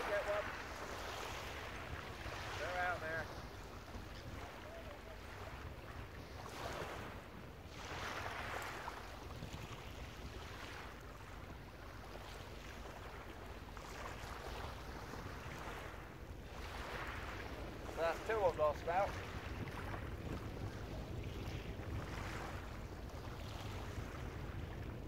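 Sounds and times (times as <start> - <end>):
waves washing onto shingle: 0.0 - 25.0
wind rumble on microphone: 0.0 - 25.0.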